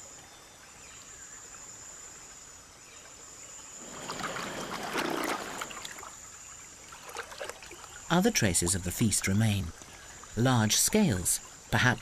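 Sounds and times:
high insect whine: 0.0s - 12.0s
water sloshing and splashing: 3.8s - 12.0s.

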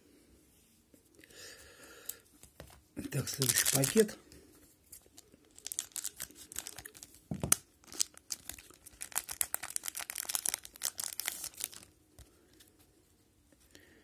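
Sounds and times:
wrapper crackling rustles: 3.2s - 4.2s, 5.5s - 12.0s.

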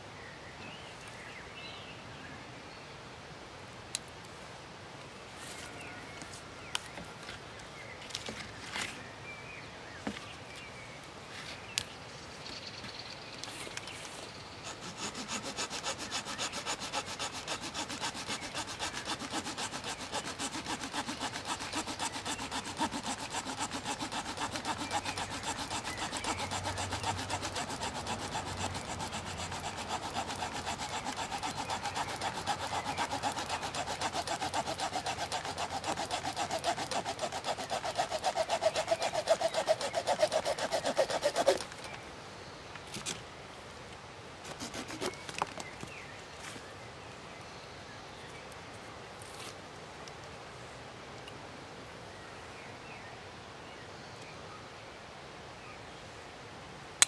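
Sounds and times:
small saw cutting a branch: 14.6s - 42.0s, 44.4s - 45.7s.

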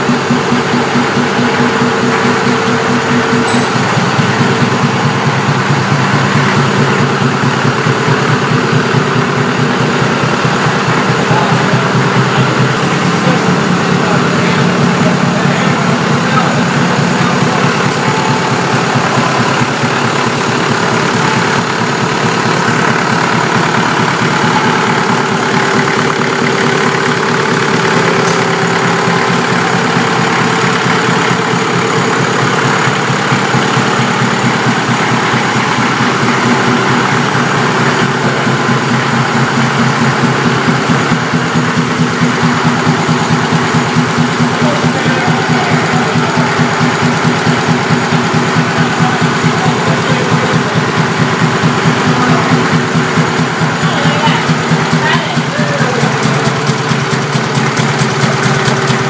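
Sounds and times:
air compressor engine running: 0.0s - 59.0s.

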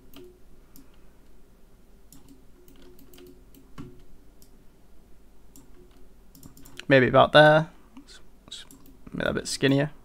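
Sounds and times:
keyboard and mouse clicks: 0.0s - 1.0s, 2.1s - 4.6s, 5.5s - 6.9s, 8.6s - 9.0s.

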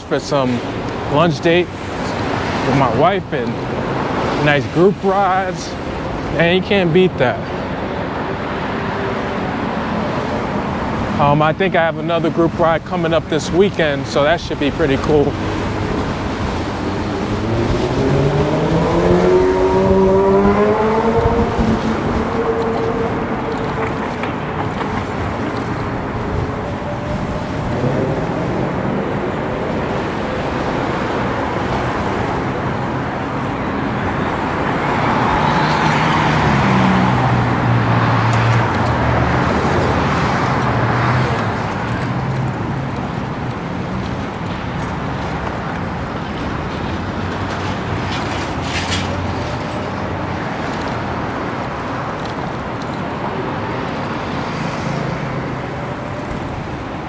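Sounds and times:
road traffic: 0.0s - 57.0s
passing motor vehicle engine: 14.8s - 44.8s.

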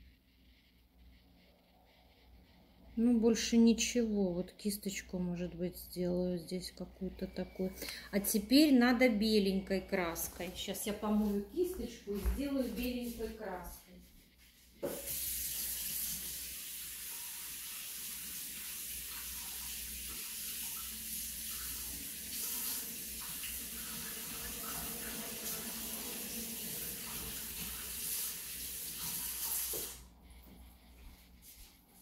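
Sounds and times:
paintbrush rinsed under water: 14.5s - 30.0s
tap running into a sink: 14.8s - 16.2s, 21.5s - 30.0s.

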